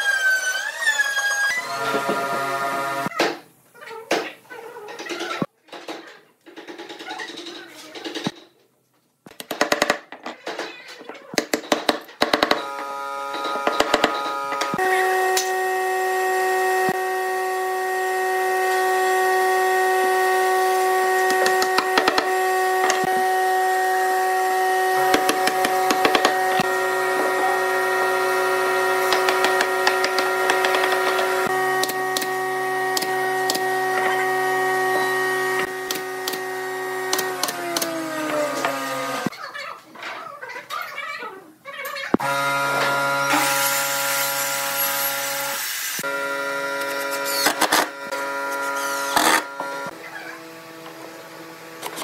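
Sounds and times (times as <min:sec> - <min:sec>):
machine humming: 0:01.5 - 0:03.1, 0:12.6 - 0:39.3, 0:42.2 - 0:52.0.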